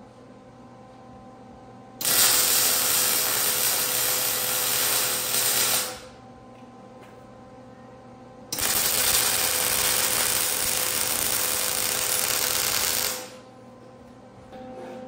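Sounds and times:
arc welding crackling hiss: 2.0 - 6.1, 8.6 - 13.4.

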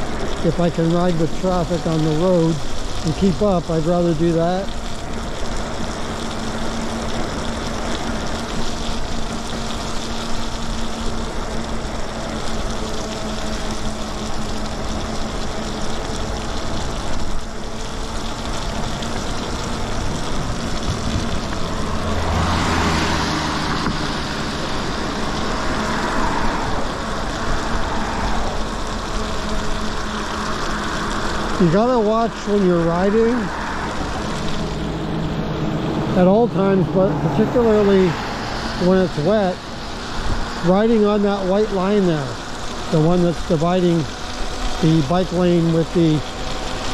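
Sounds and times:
tyre noise on wet road: 0.0 - 46.9
vehicle passing with low rumble: 17.9 - 46.9
wind noise: 19.9 - 24.2.

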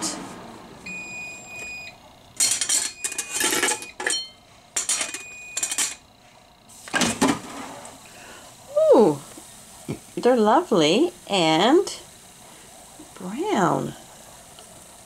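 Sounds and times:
air fryer drawer clunk: 6.9 - 7.6.

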